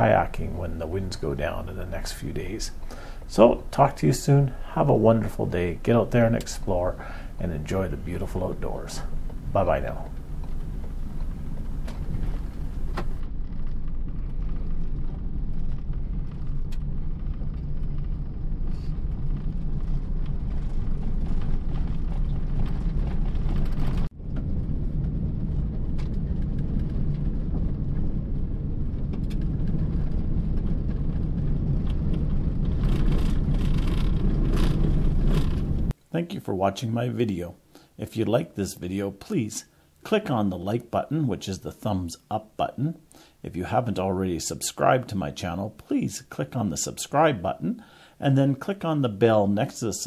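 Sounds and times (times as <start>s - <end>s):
gravel ticking: 0.0s - 36.0s
van engine and tyres rumbling: 0.0s - 36.0s.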